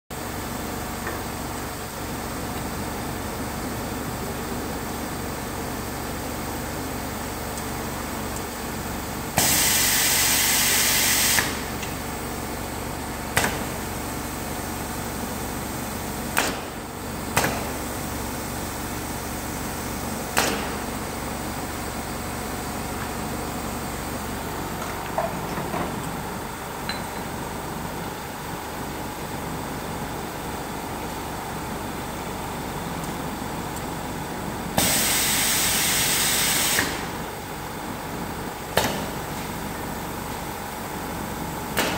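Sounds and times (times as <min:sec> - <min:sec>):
machine mechanical hum: 0:00.2 - 0:41.9
pneumatic cylinder clacks: 0:16.3 - 0:17.7, 0:20.3 - 0:20.8, 0:36.5 - 0:37.1.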